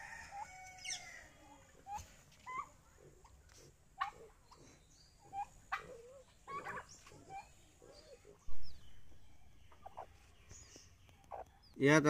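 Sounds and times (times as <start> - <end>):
turkeys and chickens calling: 0.0 - 11.8
low thump: 8.5 - 9.0.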